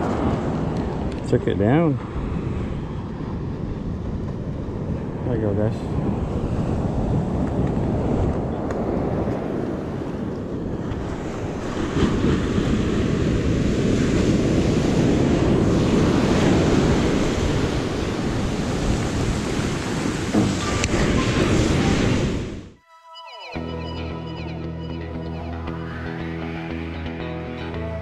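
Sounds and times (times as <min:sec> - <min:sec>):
wind buffeting microphone: 0:00.0 - 0:22.8
surf breaking on beach: 0:04.6 - 0:22.7.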